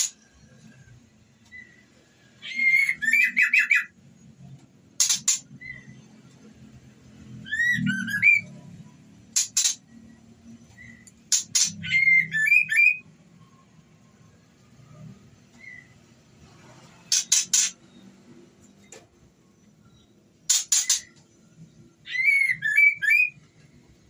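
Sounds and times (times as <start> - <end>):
bird calling with clicks and whistles: 1.4 - 4.0, 5.0 - 6.0, 7.4 - 8.6, 9.4 - 13.5, 17.1 - 18.1, 19.6 - 21.4, 22.0 - 23.8.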